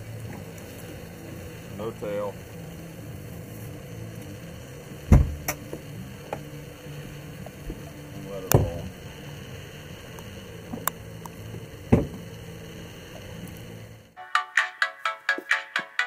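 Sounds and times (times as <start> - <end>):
outboard engines idling: 0.0 - 14.2.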